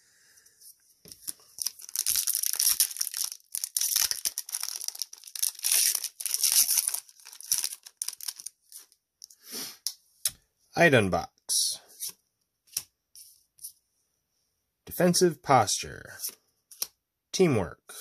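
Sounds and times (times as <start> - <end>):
foil wrapper crinkling: 1.2 - 8.6.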